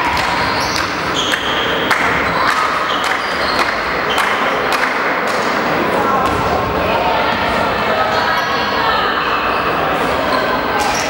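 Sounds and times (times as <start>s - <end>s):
shoes squeaking on court floor: 0.1s - 4.5s.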